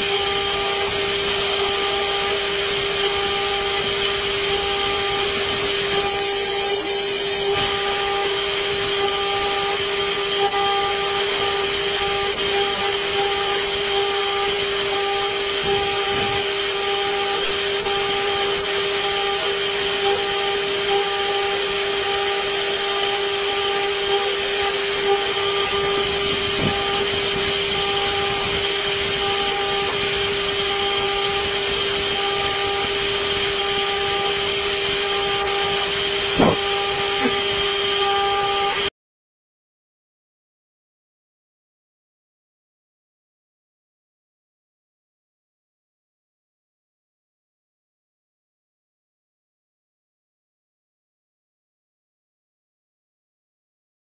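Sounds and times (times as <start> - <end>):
machine spindle whine: 0.0 - 38.9
cutting hiss: 25.2 - 37.9.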